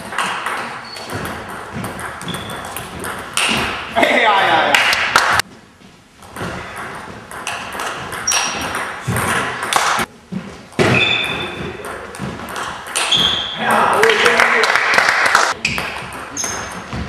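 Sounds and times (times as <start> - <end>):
short high squeaks: 10.9 - 11.6, 13.0 - 13.6, 16.3 - 16.9.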